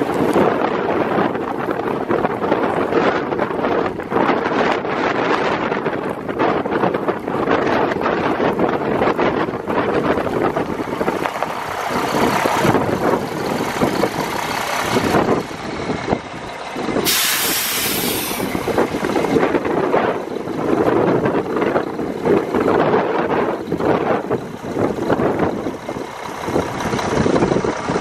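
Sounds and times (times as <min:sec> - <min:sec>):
truck diesel engine idling: 0:00.0 - 0:28.0
air brake hiss: 0:17.0 - 0:18.6.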